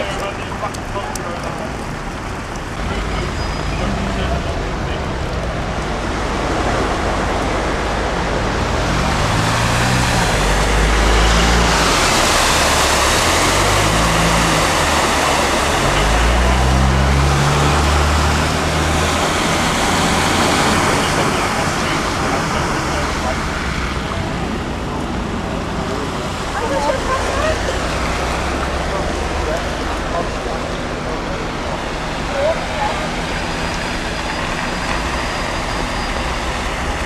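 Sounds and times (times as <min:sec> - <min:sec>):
splashing water from tyres: 0:00.0 - 0:37.0.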